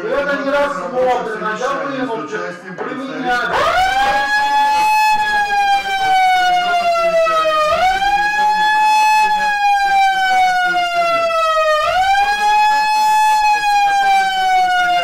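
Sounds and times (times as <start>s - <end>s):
electronic megaphone siren wailing: 3.5s - 15.0s.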